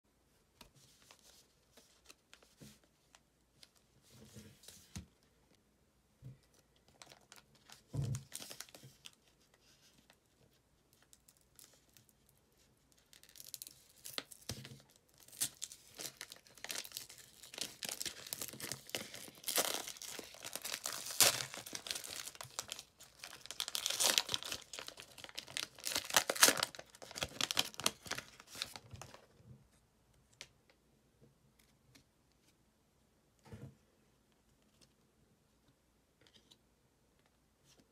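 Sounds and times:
plastic wrapper tearing and crinkling: 6.8 - 9.2, 12.9 - 29.2
thump: 33.4 - 33.8.

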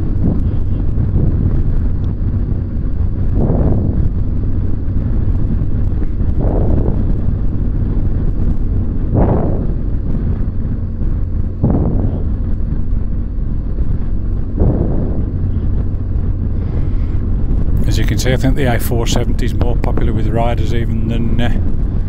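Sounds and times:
motorcycle engine hum: 0.0 - 22.0
wind noise: 0.0 - 22.0.

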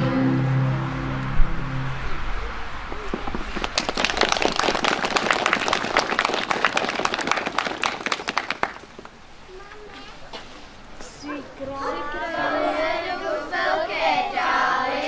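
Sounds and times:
crowd applause: 2.9 - 9.2.

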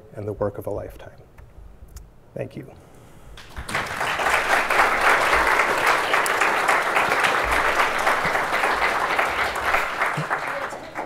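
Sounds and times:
audience applauding: 3.4 - 11.0.

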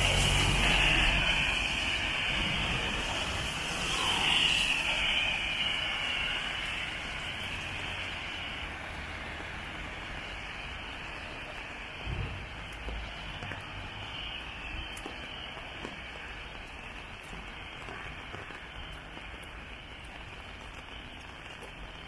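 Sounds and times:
rain hiss: 0.0 - 22.0
tyres swishing on wet road: 0.0 - 22.0.

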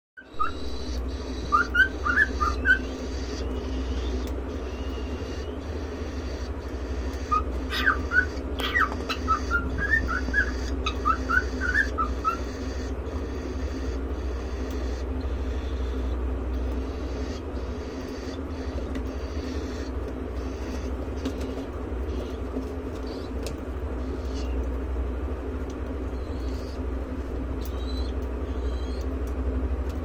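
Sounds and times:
bird whistling song: 0.2 - 16.2, 27.6 - 29.1
steady low hum: 0.2 - 30.0.

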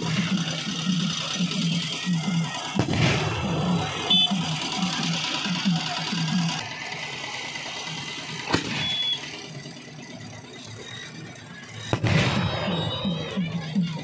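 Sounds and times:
fast low rhythmic beat: 0.0 - 6.6
fireworks bangs: 2.4 - 5.0, 8.4 - 9.4, 11.8 - 13.7.

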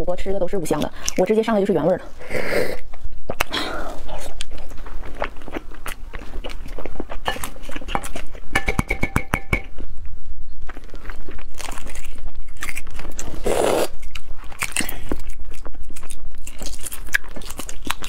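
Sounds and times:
ringing taps: 8.6 - 9.7
eggshells cracking and peeling: 10.6 - 18.0.

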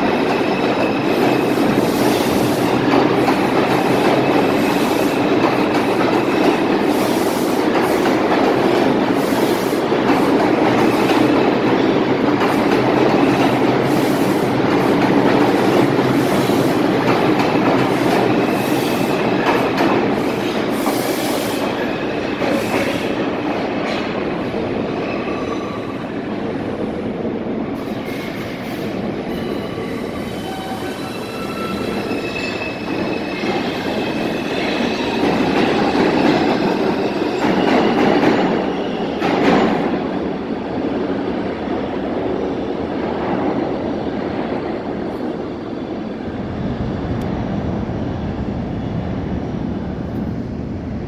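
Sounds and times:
subway wheels squealing: 0.0 - 26.9, 27.7 - 40.8
subway train running: 0.0 - 51.0.

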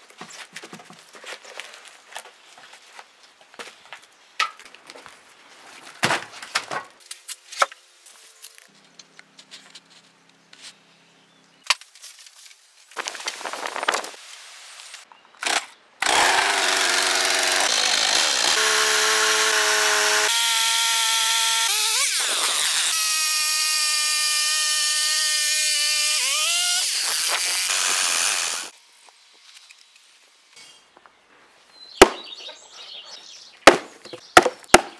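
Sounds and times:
chainsaw cutting into log: 15.5 - 28.8.

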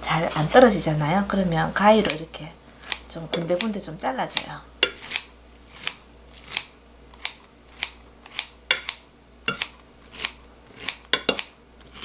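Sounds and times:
scissors snipping: 2.8 - 12.0.

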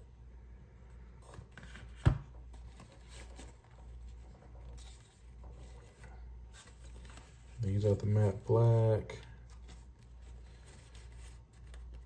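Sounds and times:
tissue paper rustling and crinkling: 2.6 - 12.0.

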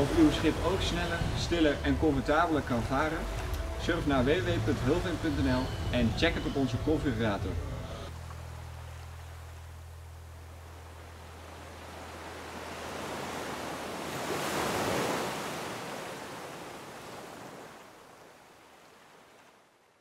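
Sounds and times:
rushing surf-like noise: 0.0 - 8.1, 10.6 - 16.9.

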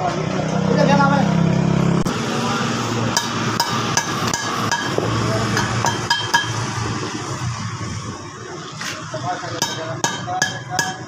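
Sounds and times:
hammer striking steel: 3.1 - 6.7, 9.6 - 11.0.

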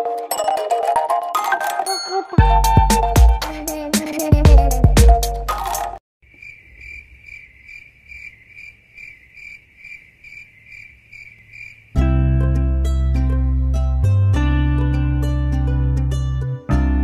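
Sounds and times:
cricket chirping: 6.2 - 12.0.

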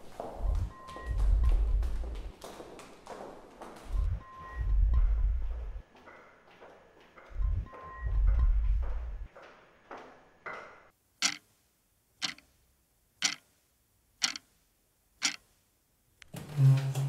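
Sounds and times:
echoing footsteps: 0.0 - 10.9
low steady tone: 0.4 - 2.3, 3.9 - 5.9, 7.2 - 9.3
wall clock ticking: 0.4 - 2.3, 3.8 - 9.4, 10.5 - 11.5, 12.2 - 12.6, 13.2 - 13.6, 14.2 - 14.6, 15.2 - 15.5.

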